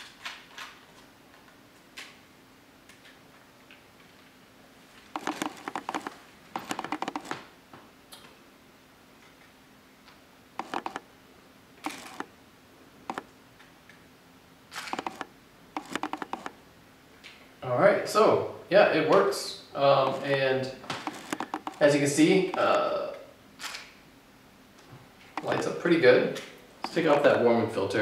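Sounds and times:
rapid plastic clicks of camera: 5.1s - 7.4s, 10.6s - 11.1s, 11.8s - 12.3s, 13.1s - 13.3s, 14.7s - 16.6s, 20.9s - 22.8s, 25.4s - 25.7s, 26.8s - 27.3s.

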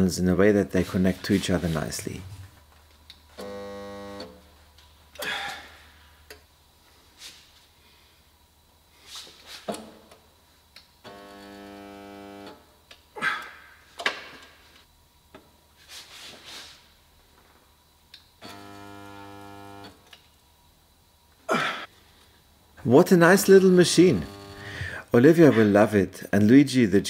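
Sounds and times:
spot welder electric buzz: 3.2s - 4.6s, 11.0s - 13.0s, 18.4s - 20.3s, 23.8s - 25.0s.

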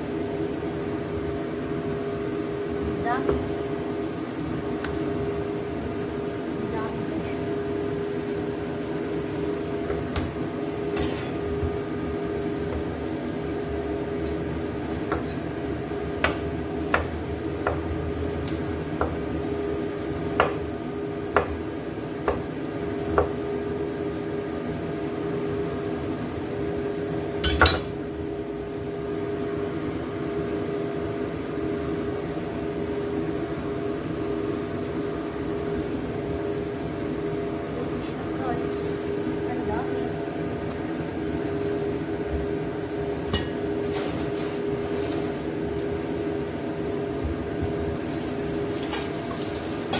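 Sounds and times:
steady background hum: 0.0s - 49.9s
knife chopping on wooden board: 14.9s - 15.4s, 16.2s - 19.2s, 20.4s - 20.6s.

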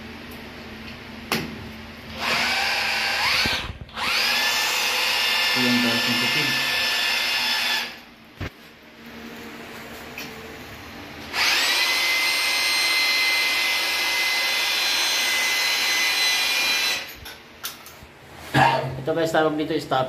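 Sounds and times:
electric power drill whining: 2.1s - 8.1s, 11.3s - 17.2s.

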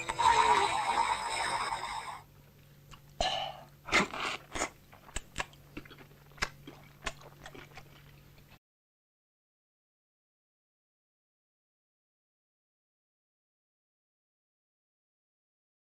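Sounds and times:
trailer music: 0.0s - 2.2s.

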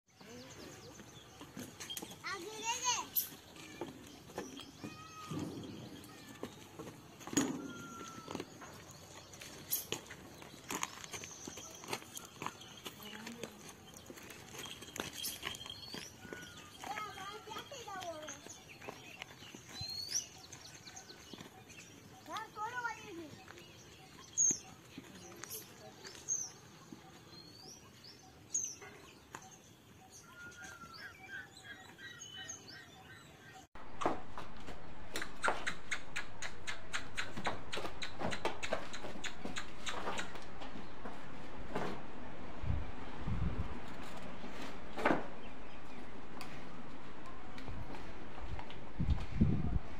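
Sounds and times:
small birds chirping: 0.1s - 33.7s, 35.1s - 40.9s.

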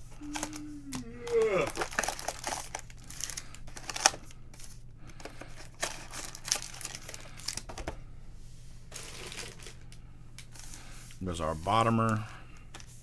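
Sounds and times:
foil packs crinkling: 0.1s - 8.0s, 8.9s - 11.0s.

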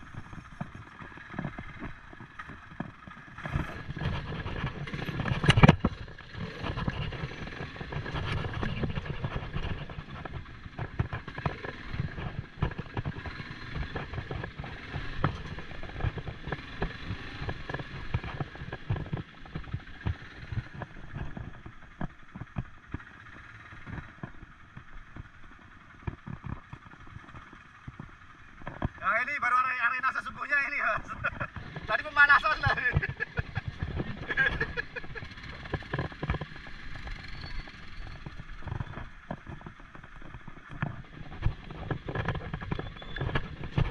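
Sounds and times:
knocks and rattles: 0.0s - 29.0s
quad engine running: 0.0s - 43.9s.

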